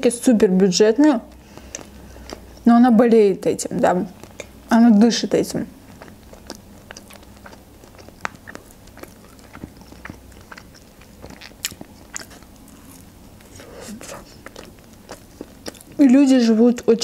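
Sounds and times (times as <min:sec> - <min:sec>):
chewing burger: 0:01.2 - 0:02.7, 0:03.6 - 0:04.7, 0:05.7 - 0:16.1.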